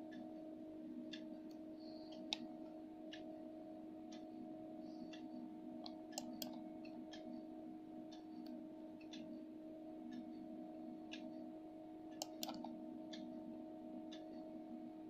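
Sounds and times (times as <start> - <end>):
faint clock ticking: 0.0 - 15.0
low hum: 0.0 - 15.0
sharp clicks: 5.8 - 6.6, 12.2 - 12.7.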